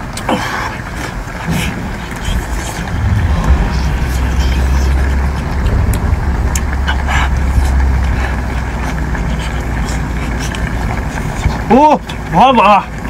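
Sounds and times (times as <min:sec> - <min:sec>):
low engine-like rumble: 0:00.0 - 0:13.0
person chewing wetly: 0:08.8 - 0:11.5.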